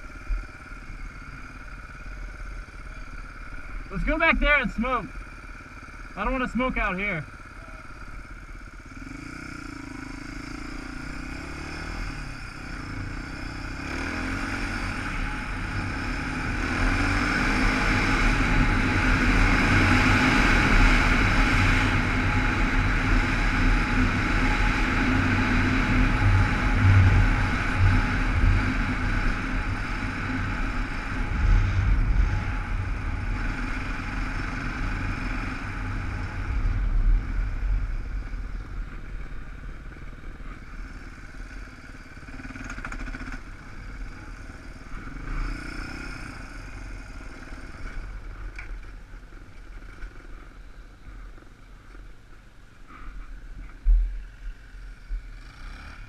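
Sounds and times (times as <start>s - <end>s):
motorcycle engine running: 0.0s - 56.0s
road rumble: 0.0s - 56.0s
wind noise: 15.0s - 39.8s.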